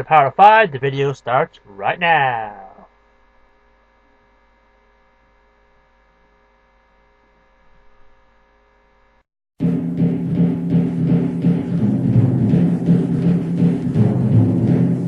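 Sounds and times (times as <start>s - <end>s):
electrical mains hum: 0.0s - 9.2s.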